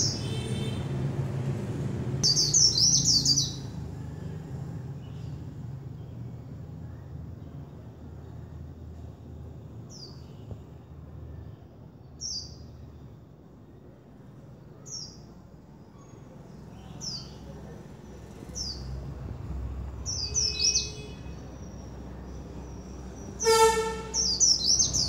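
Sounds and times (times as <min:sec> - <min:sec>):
bird chirping: 0:02.2 - 0:03.7, 0:20.0 - 0:25.0.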